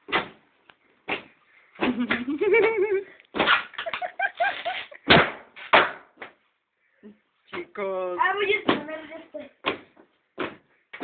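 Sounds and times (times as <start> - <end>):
balloon popping: 1.1 - 2.4, 3.3 - 6.4.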